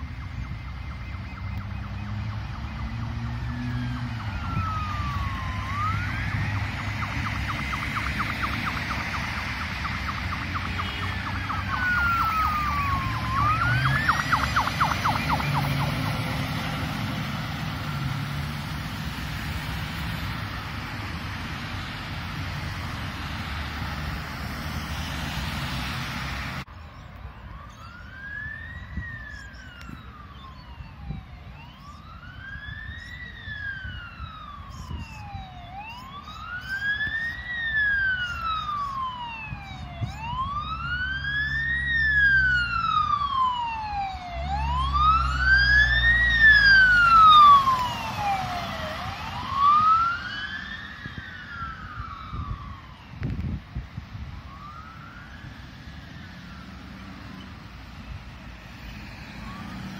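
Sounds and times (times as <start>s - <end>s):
traffic noise: 0.0s - 59.9s
vehicle engine and tyre noise: 0.0s - 59.9s
wailing siren: 0.0s - 59.9s
wind: 0.0s - 59.9s.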